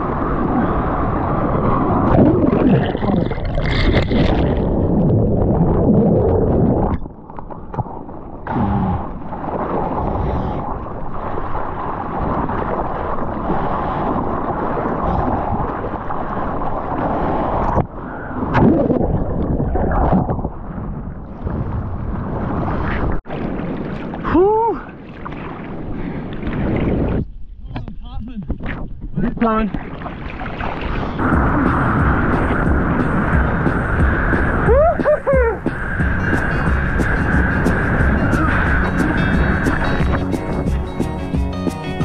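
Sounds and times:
water rushing and splashing: 0.0 - 27.2, 29.4 - 42.0
wind buffeting microphone: 0.0 - 29.7, 30.3 - 42.0
person shouting: 34.7 - 35.6.

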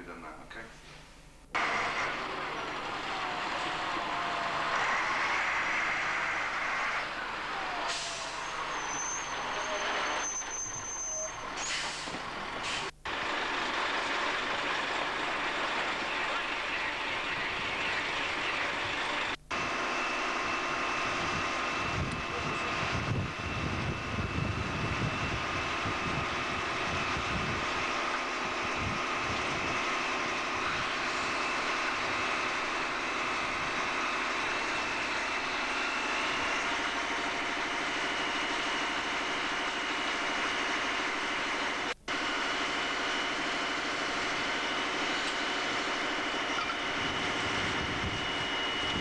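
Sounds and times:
fire engine running: 1.5 - 49.0
low rumbling surges: 1.6 - 8.7.

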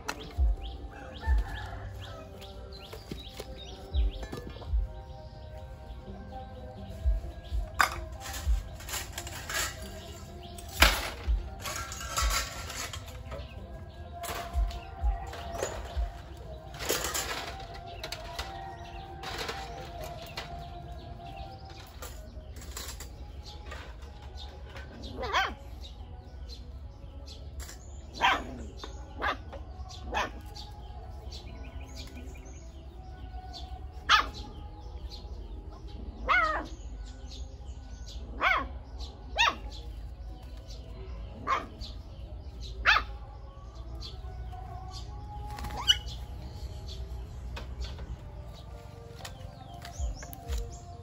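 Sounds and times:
puppy barking and yelping: 25.0 - 25.9, 28.1 - 30.6, 34.0 - 34.6, 36.2 - 36.8, 38.3 - 39.9, 41.3 - 42.1, 42.7 - 43.4, 45.7 - 46.3.

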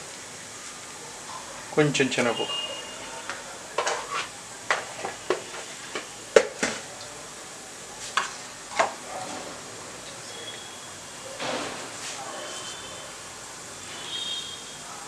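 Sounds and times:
spices sizzling in oil: 0.0 - 9.0.

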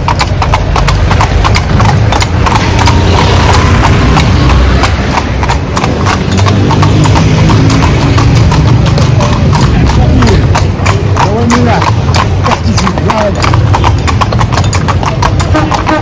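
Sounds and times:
hooves clip-clopping on pavement: 0.0 - 16.0.

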